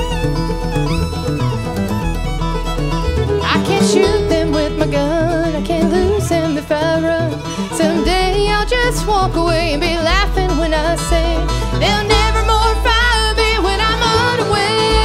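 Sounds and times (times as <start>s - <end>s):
bluegrass band playing: 0.0s - 15.0s
woman singing: 3.4s - 15.0s.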